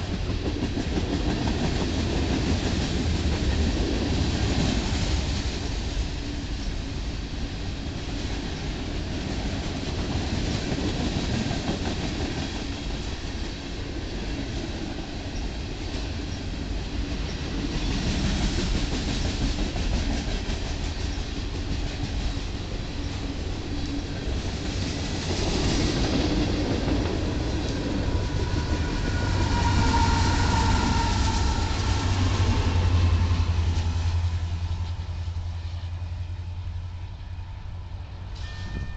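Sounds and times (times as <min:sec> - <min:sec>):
train wheels rumbling on rails: 0:00.0 - 0:38.9.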